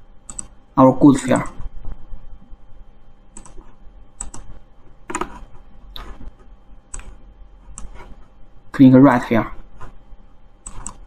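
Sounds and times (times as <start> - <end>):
computer mouse clicking: 0.3 - 0.5, 3.4 - 3.6, 4.2 - 4.5, 5.1 - 6.2, 6.9 - 8.1, 10.6 - 11.0.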